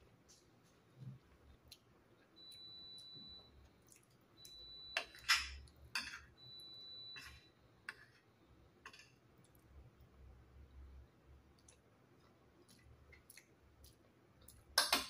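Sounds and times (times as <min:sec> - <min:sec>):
faint high steady tone: 0:02.3 - 0:08.5
cutlery scraping a plate: 0:05.0 - 0:06.3.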